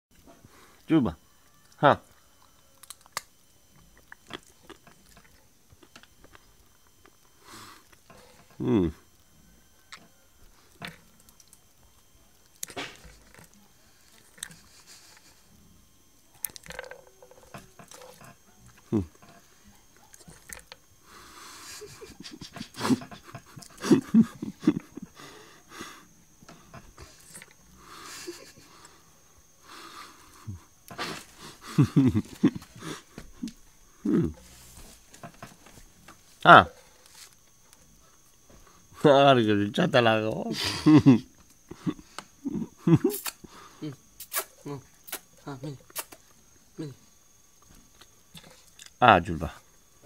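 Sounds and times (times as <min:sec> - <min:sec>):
dog mouth clicks and smacks: 0:45.9 - 0:46.2.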